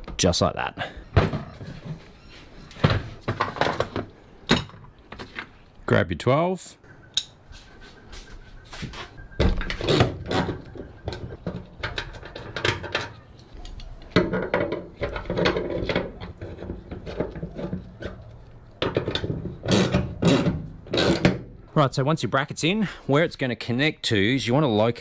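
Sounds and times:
tools and metal bracket clinking: 0:03.3 - 0:05.0
handling noise: 0:07.3 - 0:21.7.

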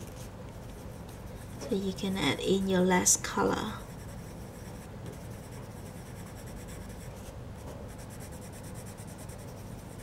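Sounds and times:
pencil scratching on paper: 0:03.6 - 0:07.3, 0:07.9 - 0:10.0.

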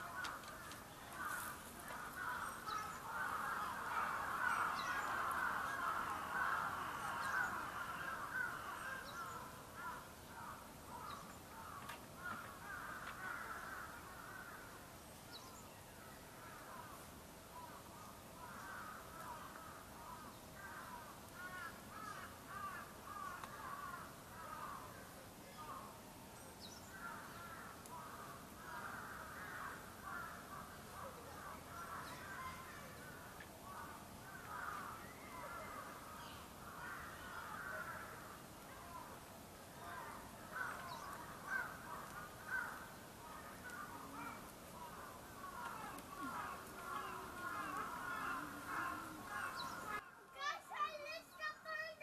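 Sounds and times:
many birds chattering: 0:00.0 - 0:52.0.

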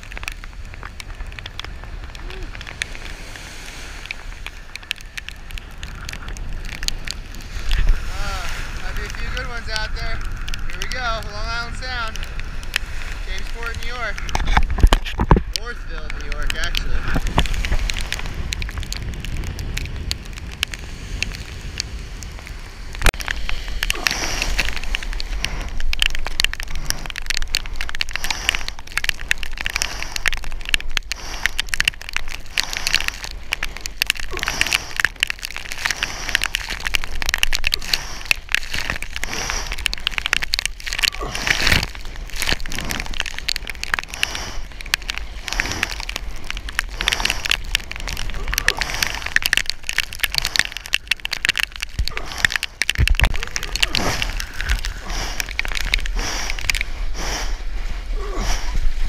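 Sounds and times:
rain and spray hitting camera: 0:00.0 - 0:59.0
water splashing around surfboard: 0:22.9 - 0:59.0.

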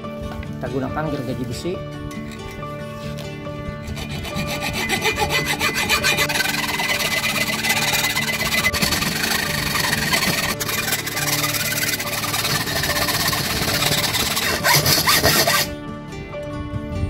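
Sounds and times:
hacksaw cutting metal rod: 0:03.8 - 0:15.7.

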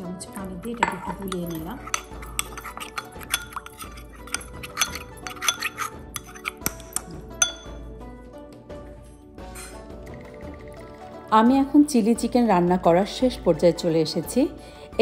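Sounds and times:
metal spoon clinking on ceramic bowl: 0:00.3 - 0:07.8.

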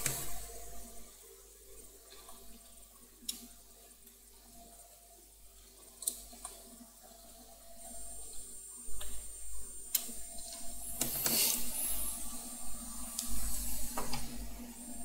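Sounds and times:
faint room hum: 0:00.0 - 0:15.0.

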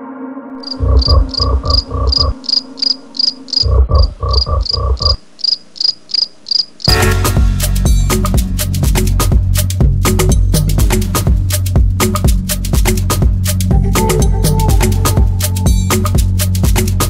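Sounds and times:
high-pitched insect-like chirping: 0:00.6 - 0:06.9
low thumps: 0:00.8 - 0:02.4, 0:03.6 - 0:05.2
loud music: 0:06.9 - 0:17.0.

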